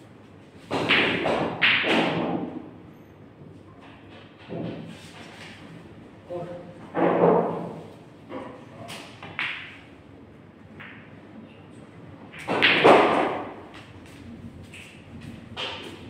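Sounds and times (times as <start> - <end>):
pool balls clacking: 0.6 - 2.6, 12.3 - 13.8.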